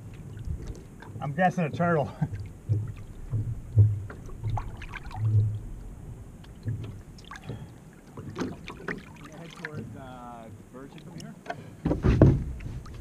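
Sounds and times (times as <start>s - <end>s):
dull low thumps: 0.0s - 8.8s, 11.8s - 13.0s
paddle splashing in water: 0.0s - 13.0s
water washing along hull: 0.0s - 13.0s.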